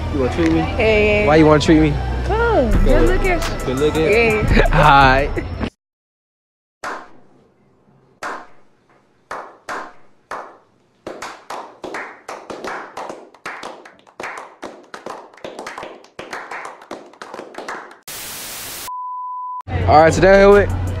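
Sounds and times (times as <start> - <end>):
people clapping: 9.3 - 18.1.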